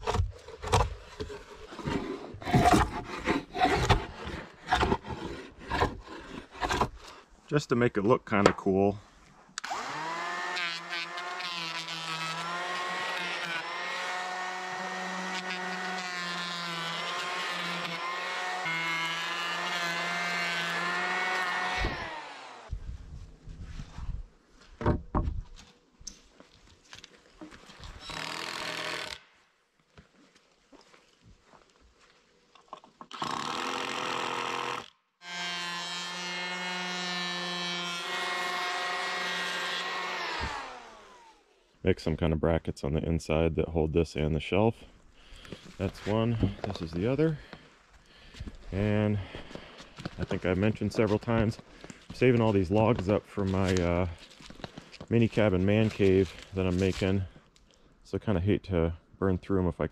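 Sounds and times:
electric hand planer shaving wood: 9.6s - 22.7s, 33.2s - 41.4s.

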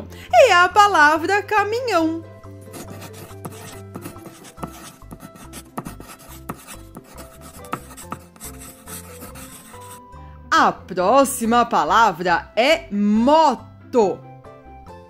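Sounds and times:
soft background music: 0.0s - 15.0s
pencil scratching on paper: 2.7s - 10.0s.

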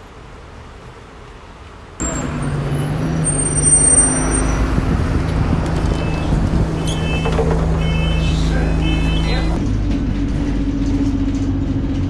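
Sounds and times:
bus engine droning: 0.0s - 12.0s
faint street ambience: 0.0s - 12.0s
thin high squeals: 3.2s - 4.6s.

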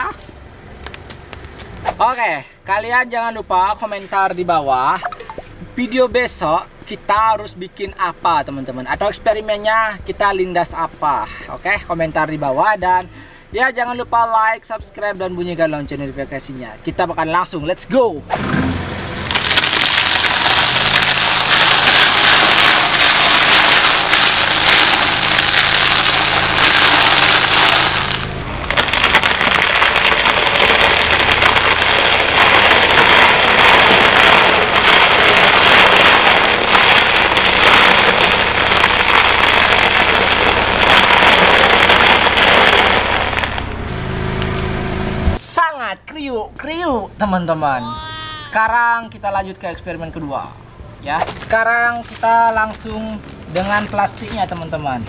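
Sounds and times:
tyre crushing crackers: 19.3s - 43.7s, 51.2s - 55.0s.

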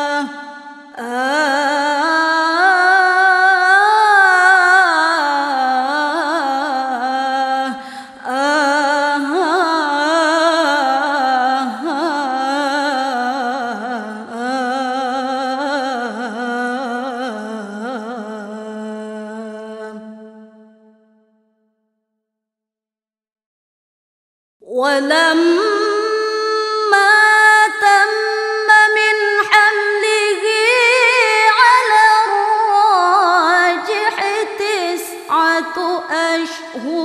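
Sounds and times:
woman singing devotional song: 0.0s - 21.4s, 24.6s - 37.0s.

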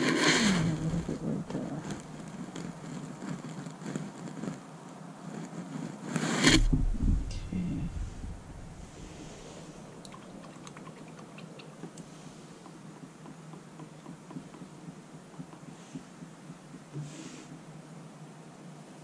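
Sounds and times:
short hiss: 6.2s - 7.3s.

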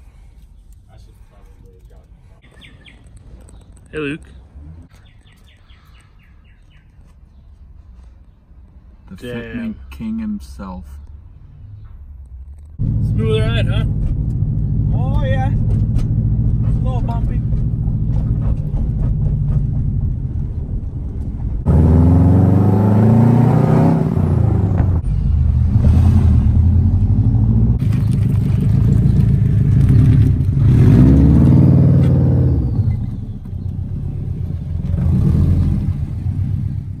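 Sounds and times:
car engine accelerating: 12.8s - 37.0s.

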